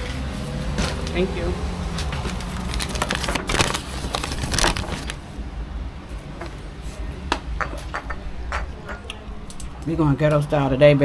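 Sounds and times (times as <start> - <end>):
paper bag crinkling: 2.2 - 5.3.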